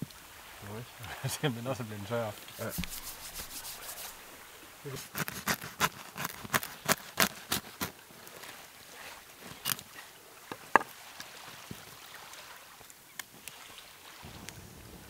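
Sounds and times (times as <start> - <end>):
knife sawing through bread crust: 2.6 - 4.3, 5.0 - 7.9
bread crust cracking: 5.1 - 7.9.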